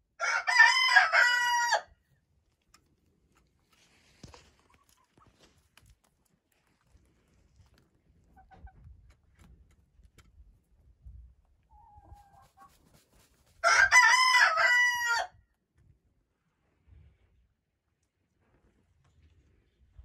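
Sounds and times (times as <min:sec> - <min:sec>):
rooster crowing: 0:00.2 - 0:01.9, 0:13.6 - 0:15.3.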